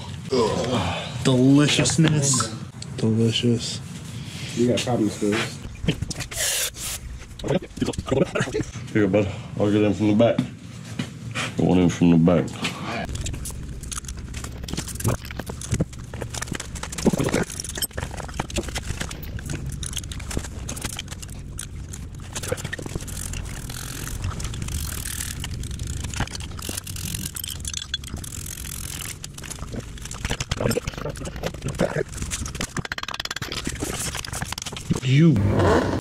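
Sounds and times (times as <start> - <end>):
low steady hum: 5.5 - 11.3, 12.9 - 35.2
metallic clicks and clanks: 13.1 - 35.0
tools on concrete floor: 13.1 - 35.0.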